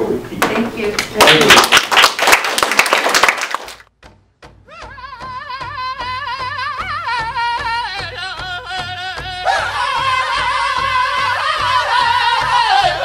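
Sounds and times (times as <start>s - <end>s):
audience applauding: 1.2s - 3.9s
wavering singing voice over a beat: 4.4s - 13.0s.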